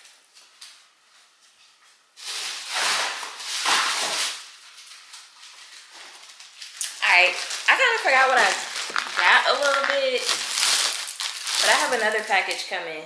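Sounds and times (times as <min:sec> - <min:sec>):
rustling and shuffling: 0:04.6 - 0:12.3.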